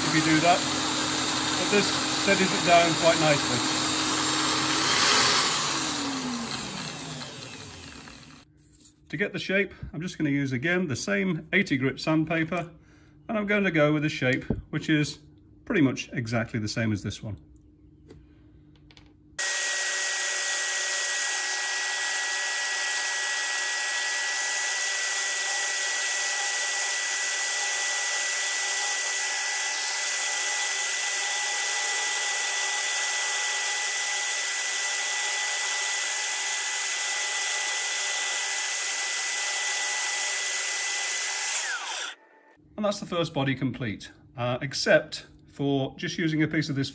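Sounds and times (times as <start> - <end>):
electric drill whining: 0.0 - 8.5, 19.4 - 42.6.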